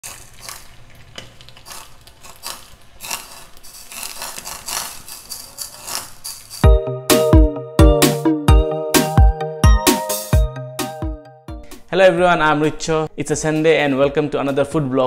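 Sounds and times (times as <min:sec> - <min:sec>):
crackling and sizzling in ladle: 0:00.0 - 0:06.7.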